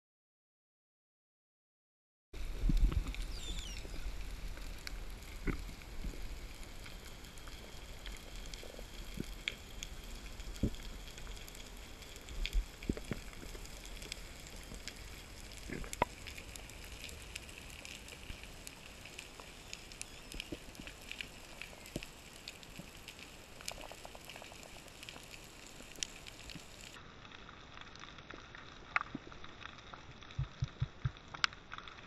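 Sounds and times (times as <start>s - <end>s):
steady hiss: 2.4s - 27.3s
underwater clicks crackling: 2.6s - 27.0s, 28.8s - 32.0s.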